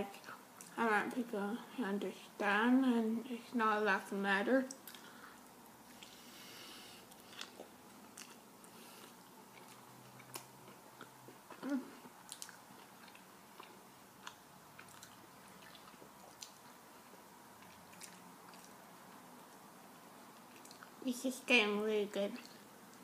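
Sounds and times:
person chewing with wet mouth clicks: 7.1 - 18.8, 20.4 - 21.0.

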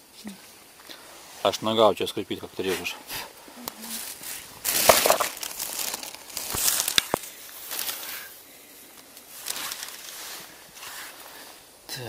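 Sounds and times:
leaf litter crunching underfoot: 3.7 - 11.6.

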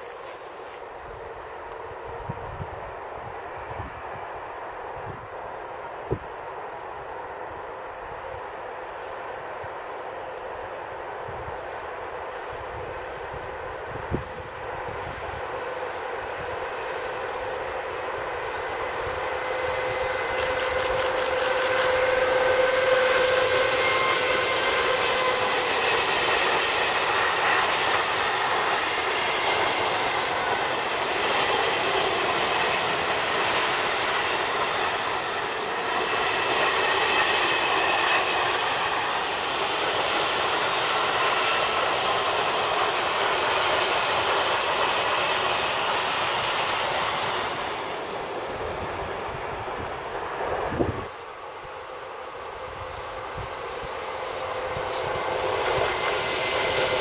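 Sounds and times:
train wheels rumbling on rails: 0.0 - 57.0
locomotive whining: 11.7 - 57.0.

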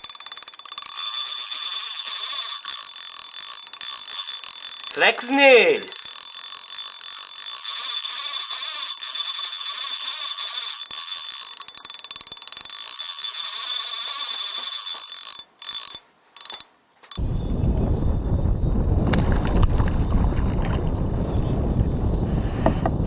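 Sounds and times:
high-pitched ratcheting buzz: 0.0 - 17.2
wind rumbling on microphone: 17.2 - 23.0.

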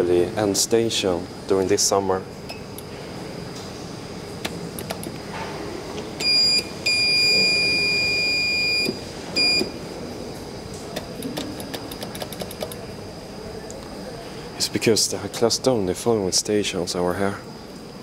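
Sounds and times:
high-pitched buzzer beeps: 6.2 - 9.8.

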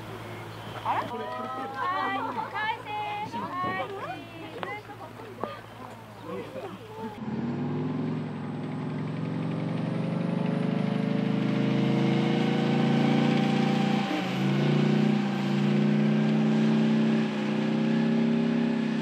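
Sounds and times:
tank diesel engine running: 6.0 - 19.0.

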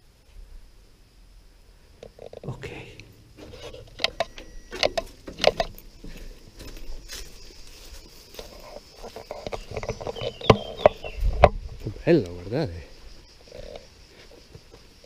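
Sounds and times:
footsteps on gravel: 3.4 - 12.0.

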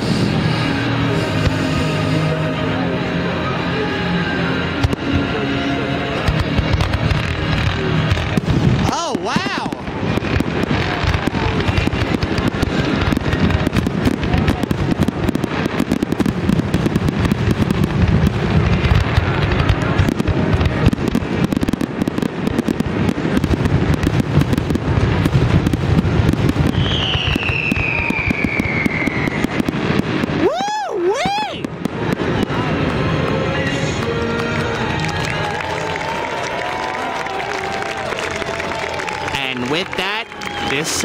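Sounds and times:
falling firework whistle: 0.0 - 2.5, 26.5 - 31.7, 34.7 - 41.0
fireworks bangs and crackles: 0.0 - 41.0.

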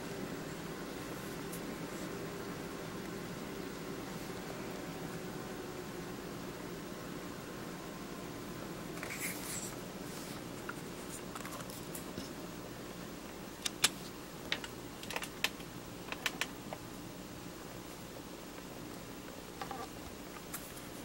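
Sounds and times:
steady background hiss: 0.0 - 21.0
soft rustle: 9.0 - 12.4.

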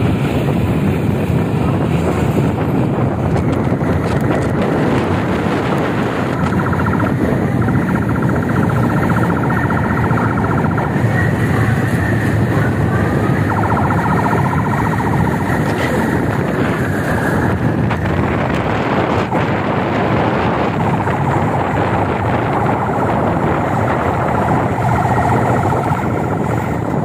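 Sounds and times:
traffic rumble: 0.0 - 27.0
wind buffeting microphone: 0.0 - 27.0
police siren pulsing: 2.5 - 27.0.

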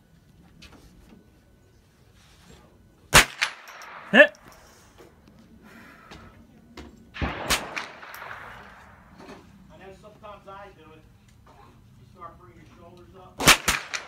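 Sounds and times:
rifle shots: 3.1 - 4.4, 7.1 - 9.5, 13.4 - 14.0.

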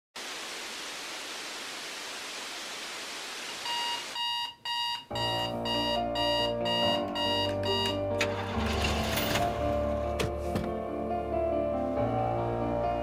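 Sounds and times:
video static hiss: 0.2 - 4.6.

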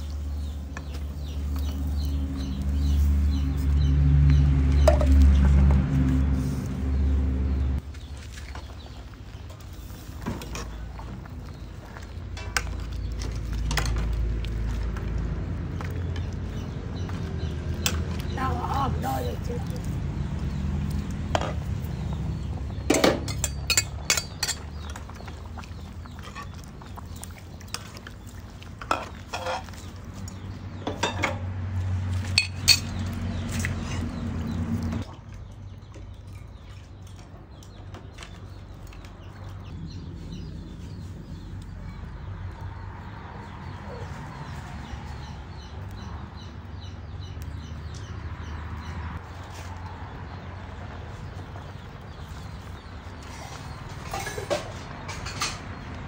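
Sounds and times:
ladle clinking against metal pot: 22.9 - 24.7.

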